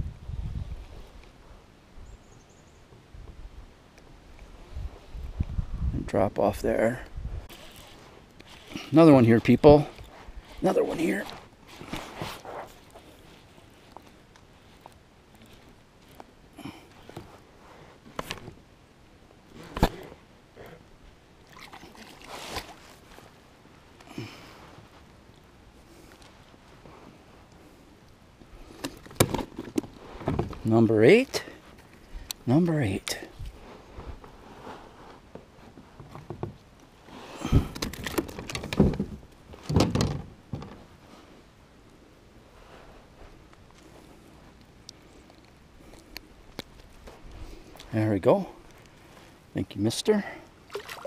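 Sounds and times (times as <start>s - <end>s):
water splashing and sloshing: 21.4s - 23.5s, 50.5s - 51.0s.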